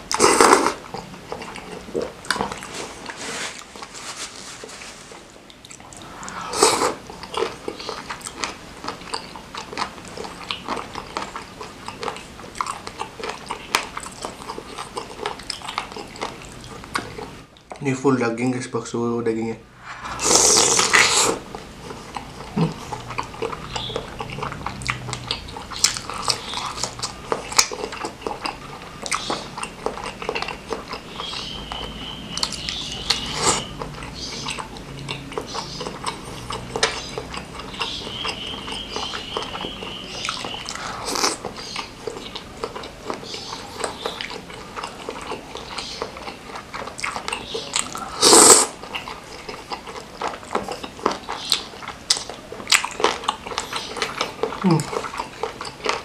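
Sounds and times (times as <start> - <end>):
wet chewing: 0.0 - 4.0, 5.1 - 17.8, 19.8 - 56.0
slurping noodles: 0.1 - 0.8, 5.7 - 8.4, 19.8 - 28.1, 40.5 - 41.8, 47.8 - 49.4.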